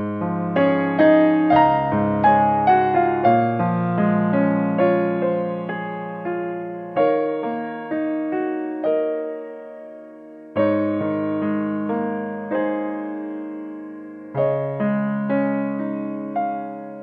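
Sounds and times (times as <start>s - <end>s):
slow piano music: 0.0s - 17.0s.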